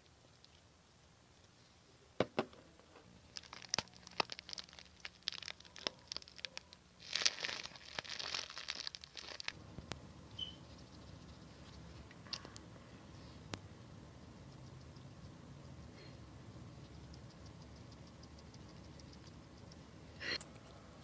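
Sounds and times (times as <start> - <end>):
plastic squeeze bottle crinkling: 3.3 - 9.6
sticky crackling clicks: 3.3 - 10.0.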